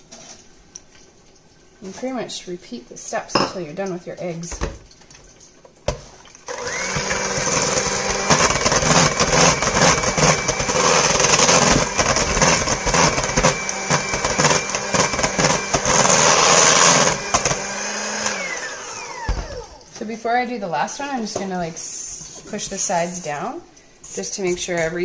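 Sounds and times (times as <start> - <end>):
electric hand mixer running: 6.5 - 19.9.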